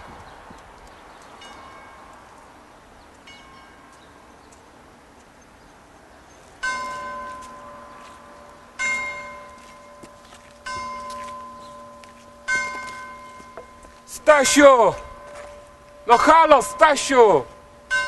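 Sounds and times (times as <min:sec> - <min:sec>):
faint chimes: 0:01.4 - 0:02.1, 0:06.6 - 0:18.0
loud bell strike ringing: 0:06.6 - 0:18.0.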